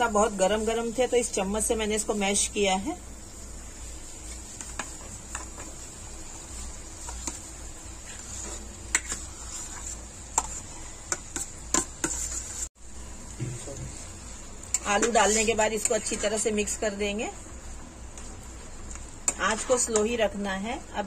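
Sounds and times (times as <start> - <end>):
spoon scraping on steel plate: 8.1 - 12.7.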